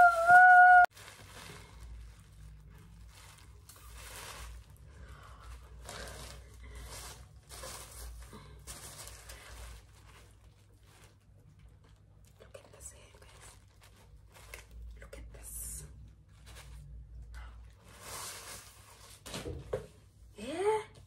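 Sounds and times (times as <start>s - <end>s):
plastic packaging crinkling: 0.0s - 14.9s.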